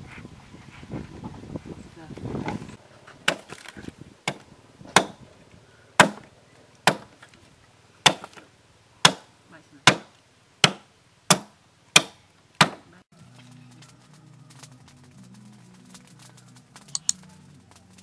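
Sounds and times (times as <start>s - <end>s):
hatchet chopping bamboo: 3.2s - 5.2s, 6.0s - 7.2s, 8.0s - 8.4s, 9.0s - 12.9s.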